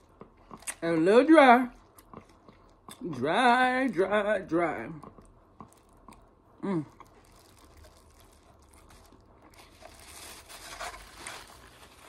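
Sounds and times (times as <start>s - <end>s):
paper napkin rustling: 9.6s - 12.0s.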